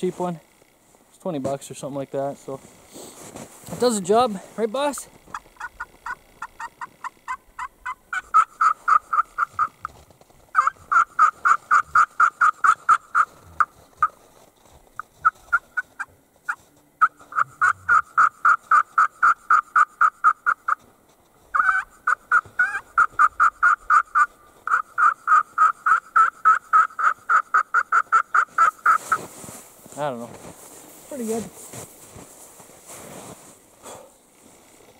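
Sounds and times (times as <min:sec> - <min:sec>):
turkey call yelps: 0:05.3 - 0:14.2, 0:15.0 - 0:20.8, 0:21.5 - 0:29.3.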